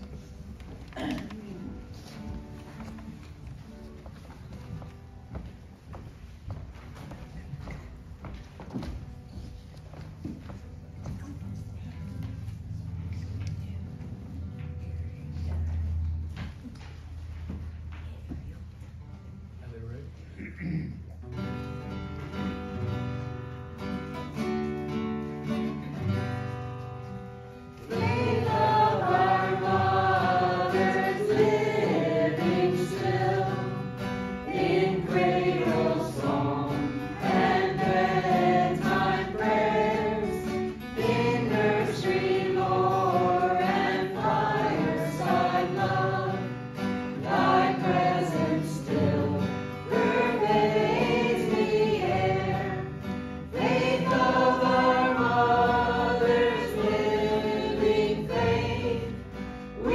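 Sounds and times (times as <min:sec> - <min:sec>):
instrumental hymn accompaniment: 0:00.0 - 0:20.2, 0:21.0 - 0:59.9
voices singing a hymn: 0:27.8 - 0:59.9.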